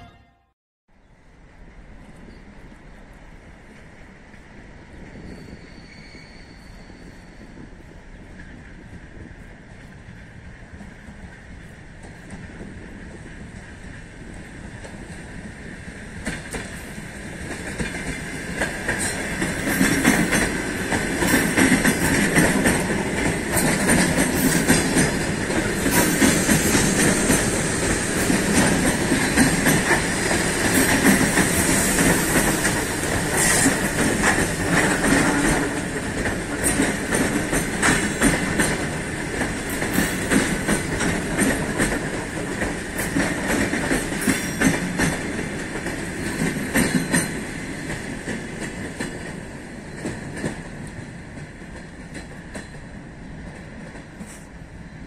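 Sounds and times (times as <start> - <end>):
train wheels clattering over rail joints: 17.4 - 54.4.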